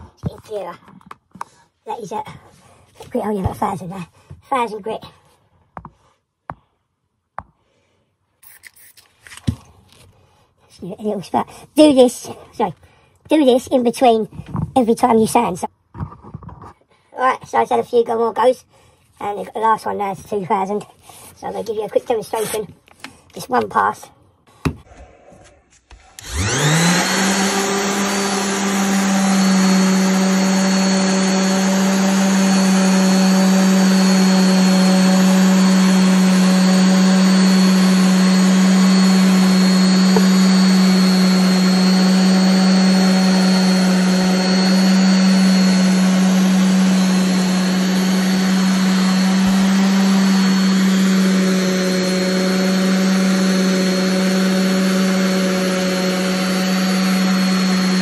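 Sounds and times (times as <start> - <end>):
orbital sander humming: 26.2 - 58.0.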